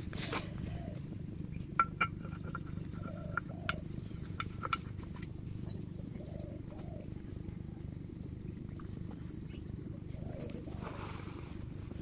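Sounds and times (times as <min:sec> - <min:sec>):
diesel pump engine thudding: 0:00.0 - 0:06.0.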